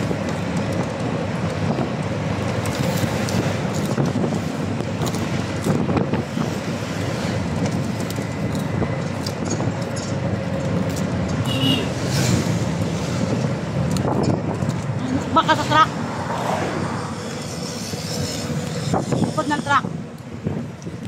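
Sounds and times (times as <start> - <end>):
vehicle engine and road noise: 0.0 - 21.0
wind buffeting microphone: 0.0 - 21.0.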